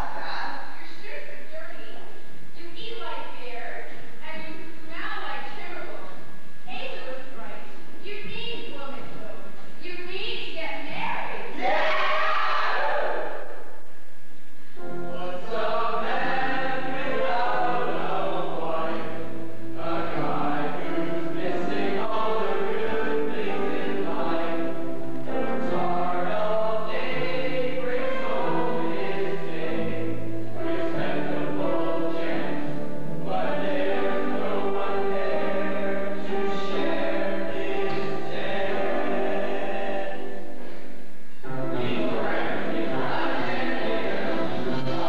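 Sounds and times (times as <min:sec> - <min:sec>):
instrumental accompaniment with bass: 0:14.8 - 0:45.0
boys singing in chorus: 0:15.2 - 0:40.6, 0:41.5 - 0:45.0.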